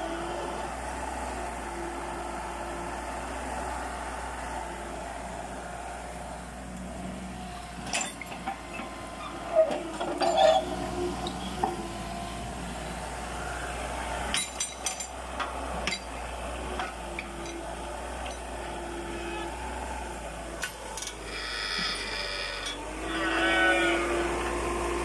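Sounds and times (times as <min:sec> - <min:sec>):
excavator diesel engine running: 0:00.0 - 0:25.0
excavator bucket clanking: 0:07.8 - 0:12.0, 0:14.3 - 0:16.1.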